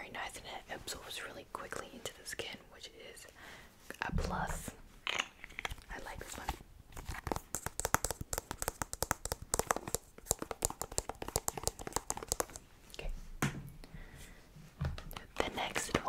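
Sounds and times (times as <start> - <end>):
fingers tapping on package: 7.1 - 12.6.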